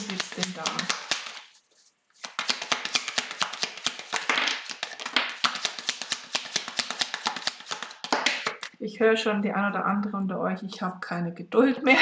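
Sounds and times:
cards being shuffled: 0:00.0 - 0:08.7.

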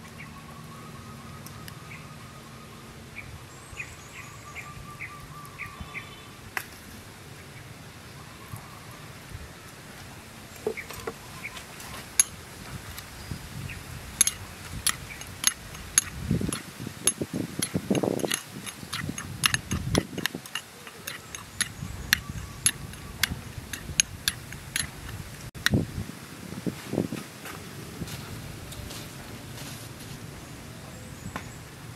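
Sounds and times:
metal spoon clinking in bowl: 0:14.2 - 0:25.2.

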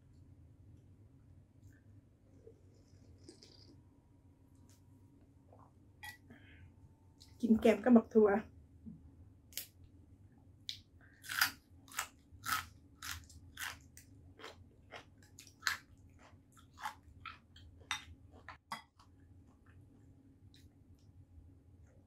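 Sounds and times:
crunching and chewing beans: 0:02.8 - 0:03.8, 0:10.7 - 0:21.0.

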